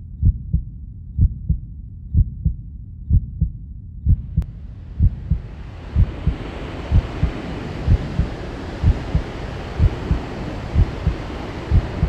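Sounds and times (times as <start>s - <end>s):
heartbeat thumps: 0.0s - 12.0s
rushing hiss: 5.3s - 12.0s.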